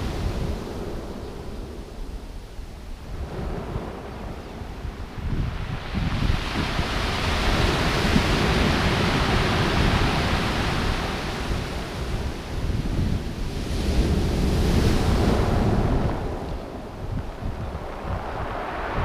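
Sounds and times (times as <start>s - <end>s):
wind buffeting microphone: 0.0s - 19.0s
surf breaking on pebble beach: 5.5s - 12.8s, 13.5s - 19.0s.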